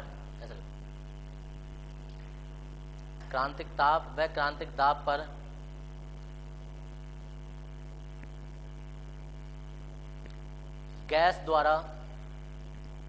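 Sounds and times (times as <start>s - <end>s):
person's voice: 0.0s - 0.7s, 3.2s - 5.5s, 11.0s - 12.2s
electrical mains hum: 0.0s - 13.0s.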